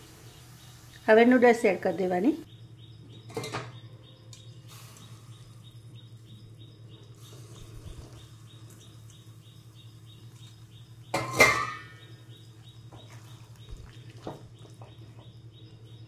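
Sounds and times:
steady low hum: 0.0 - 16.0
metal bowl clanking on wok: 11.1 - 12.0.

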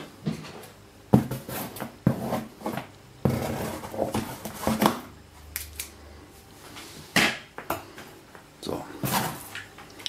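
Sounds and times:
knocks and scrapes on cardboard box: 1.1 - 5.0.

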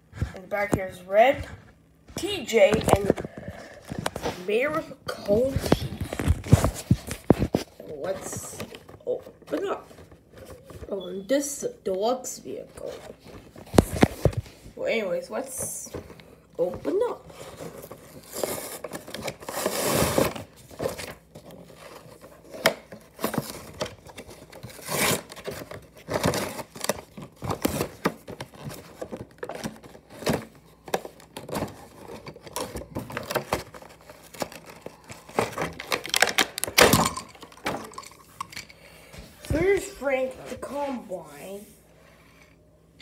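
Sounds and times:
plastic packaging crinkling: 17.3 - 38.8.

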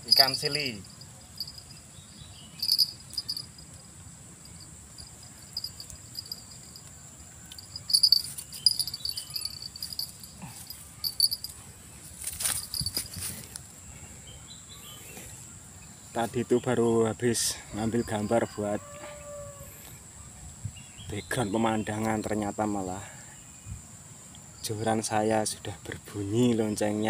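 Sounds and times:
insect chirping bursts: 0.0 - 13.9
insects droning: 0.0 - 27.0.

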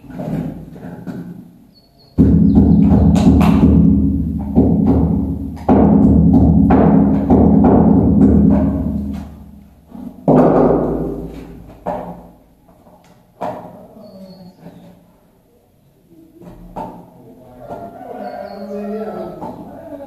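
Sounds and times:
loud booming thuds: 2.2 - 9.4.

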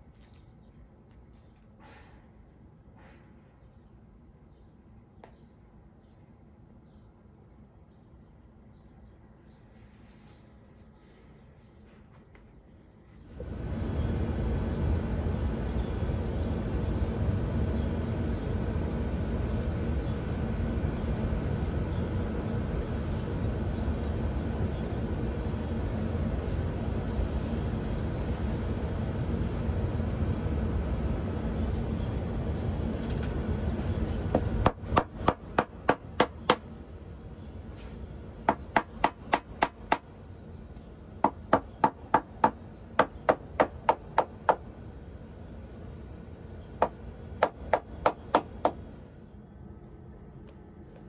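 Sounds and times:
steady low rumble: 12.8 - 51.0.

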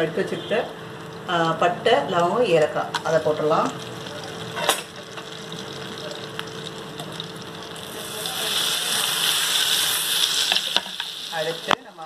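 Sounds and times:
butter sizzling in a pan: 3.0 - 12.0.

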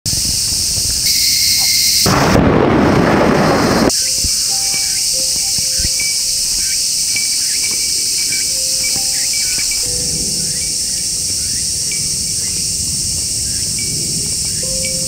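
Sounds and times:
insects shrilling: 0.1 - 15.0
thunder crack and rumble: 1.9 - 6.6, 9.0 - 15.0.

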